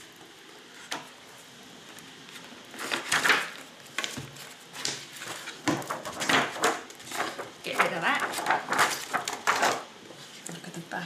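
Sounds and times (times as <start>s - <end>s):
plastic wrapper crinkling: 1.8s - 10.6s.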